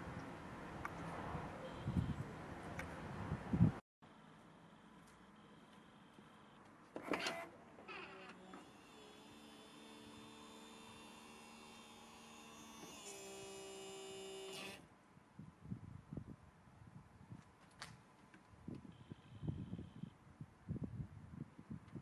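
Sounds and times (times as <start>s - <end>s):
hydraulic pump humming whine: 4.1s - 14.8s, 18.9s - 20.1s.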